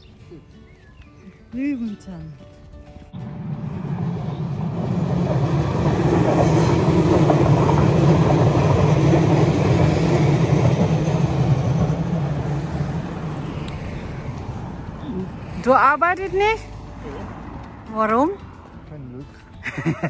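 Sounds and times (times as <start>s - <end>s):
train wheels on rails: 3.2s - 15.6s.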